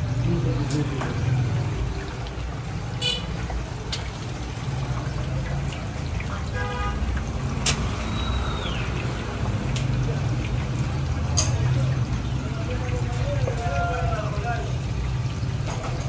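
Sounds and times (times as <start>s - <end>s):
street traffic rumble: 0.0s - 16.0s
car horn toot: 3.0s - 3.3s, 6.3s - 7.0s.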